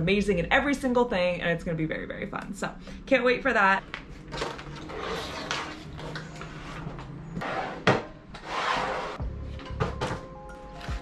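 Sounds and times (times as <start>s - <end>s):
object scraping across table: 4.4s - 9.2s
faint background music: 4.8s - 11.0s.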